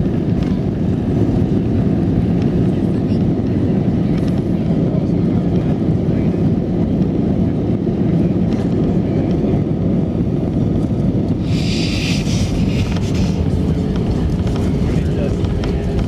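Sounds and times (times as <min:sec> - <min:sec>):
aircraft cabin rumble: 0:00.0 - 0:16.0.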